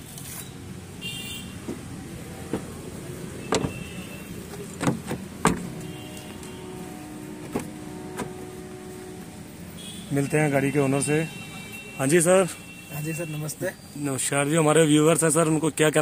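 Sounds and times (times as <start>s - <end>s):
car door and trim clicks and knocks: 1.6s - 2.8s, 3.4s - 6.5s, 7.4s - 8.5s
dull thump: 1.6s - 2.8s, 3.5s - 3.8s, 4.5s - 5.8s.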